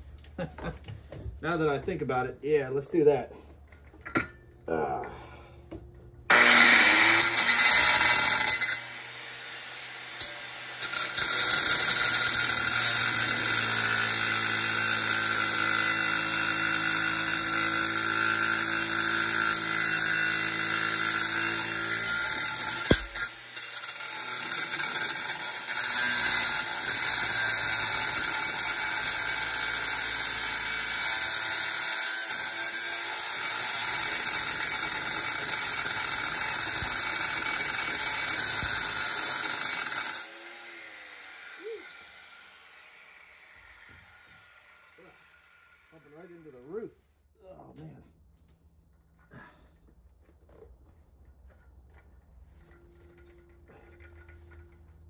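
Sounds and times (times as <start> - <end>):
angle grinder cutting metal: 6.3 - 46.5.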